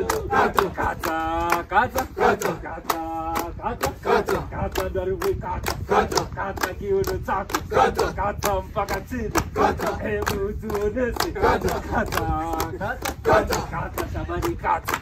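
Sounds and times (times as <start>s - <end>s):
men singing and chanting: 0.0s - 15.0s
rhythmic hand claps: 0.0s - 15.0s.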